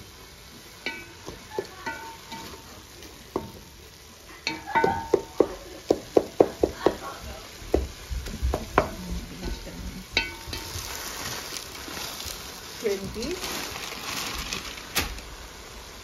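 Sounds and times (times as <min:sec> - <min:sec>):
meat frying in pot: 0:00.0 - 0:16.0
wooden spoon knocking on pot: 0:00.9 - 0:03.8, 0:04.4 - 0:10.8.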